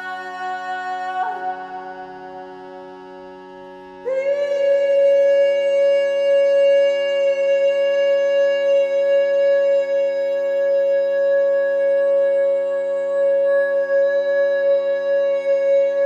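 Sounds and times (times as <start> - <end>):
drone chord: 0.0 - 6.6.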